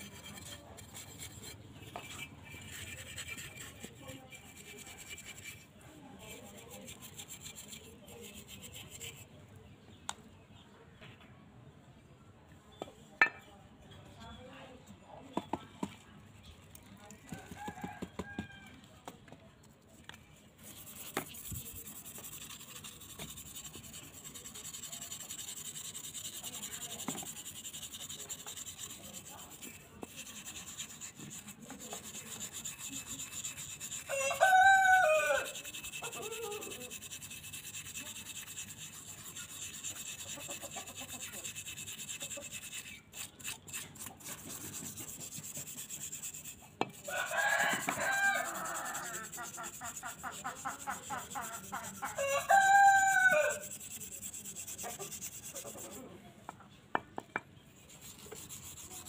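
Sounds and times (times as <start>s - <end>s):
scrubbing metal by hand: 0.0s - 9.4s, 20.2s - 56.1s, 57.8s - 59.0s
rooster crowing: 17.4s - 18.8s, 34.1s - 35.6s, 47.1s - 49.3s, 52.1s - 53.6s.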